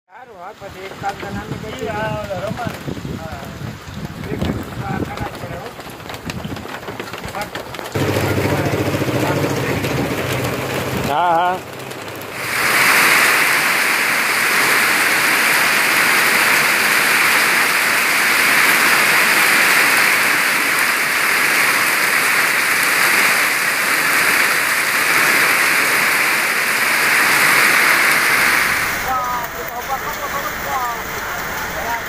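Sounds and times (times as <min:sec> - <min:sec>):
heavy rain pouring: 0:00.4 - 0:32.0.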